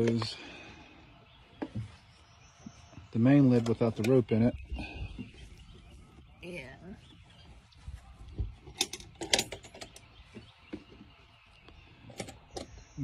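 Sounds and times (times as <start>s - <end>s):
latch clicks and rattles: 8.6s - 10.2s.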